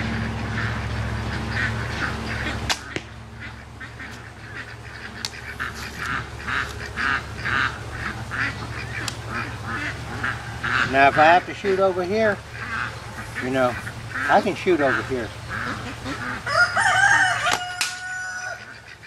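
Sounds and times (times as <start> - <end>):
ducks quacking: 0.0 - 19.0
bowstring snapping: 2.7 - 3.1.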